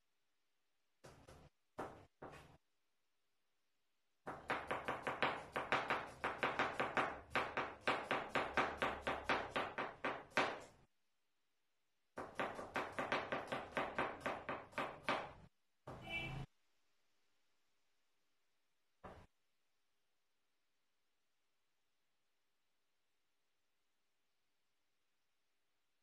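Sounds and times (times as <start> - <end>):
knife chopping on cutting board: 4.3 - 10.7, 12.2 - 16.0.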